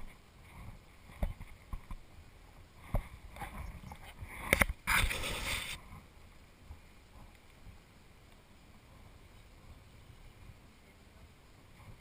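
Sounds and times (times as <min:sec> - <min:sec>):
rustling scrape: 0:02.8 - 0:05.8.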